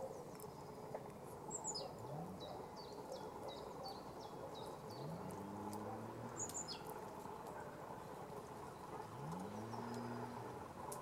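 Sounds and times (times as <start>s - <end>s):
low engine hum: 4.0s - 11.0s.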